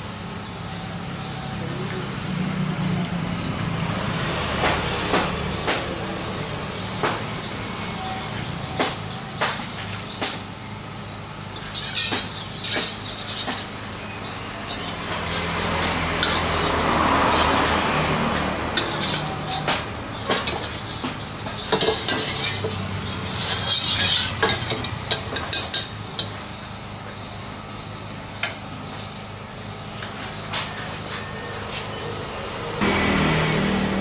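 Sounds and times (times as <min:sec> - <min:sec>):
gas burner rushing: 0:11.4 - 0:26.6
ladle clinking against wok: 0:11.6 - 0:26.4.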